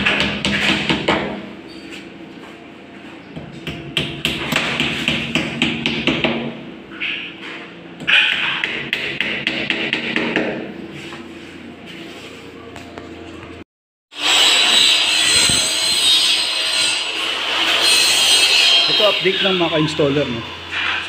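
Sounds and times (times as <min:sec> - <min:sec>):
hard hammer knock: 0:08.3 - 0:10.7.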